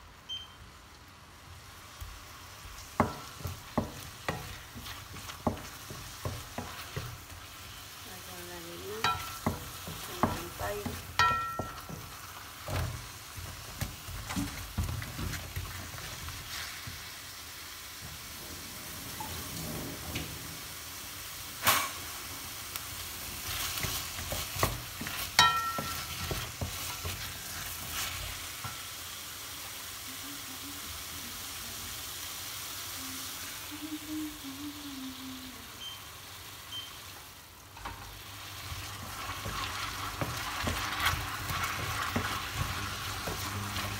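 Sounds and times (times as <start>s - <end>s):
food sizzling in a pan: 0.0s - 43.9s
wooden spatula scraping pan: 2.8s - 17.0s, 23.3s - 28.8s, 38.6s - 43.9s.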